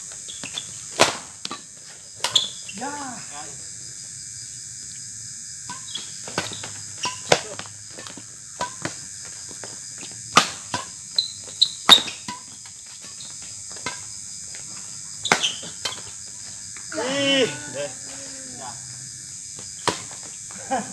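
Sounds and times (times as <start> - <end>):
insects chirring: 0.0 - 20.9
rackets hitting shuttlecock: 0.4 - 1.6, 5.7 - 9.0, 10.3 - 11.0, 15.3 - 16.1, 19.8 - 20.2.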